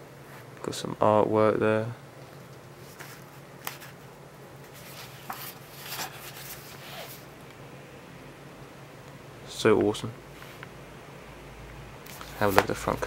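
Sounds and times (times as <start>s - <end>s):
low steady hum: 0.0s - 13.0s
paper pages rustling: 2.3s - 4.0s, 4.6s - 7.3s, 12.1s - 13.0s.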